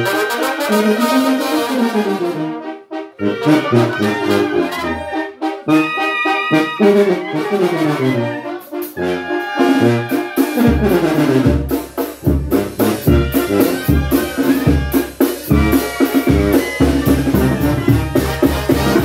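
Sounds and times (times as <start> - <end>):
trumpets and clarinets melody: 0.0 - 19.0
bass drum with cymbal beating: 10.7 - 19.0.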